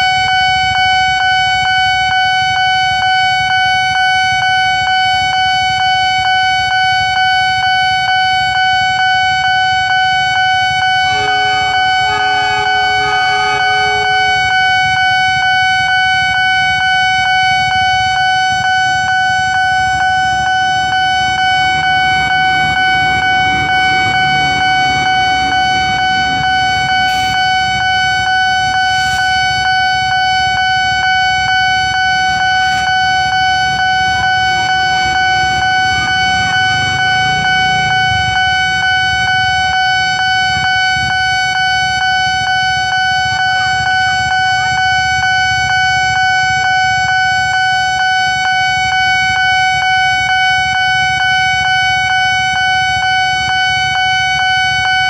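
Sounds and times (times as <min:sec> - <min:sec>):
level crossing alarm: 0:00.0 - 0:55.0
train rumbling past: 0:11.0 - 0:15.7, 0:20.7 - 0:29.5, 0:31.5 - 0:39.5.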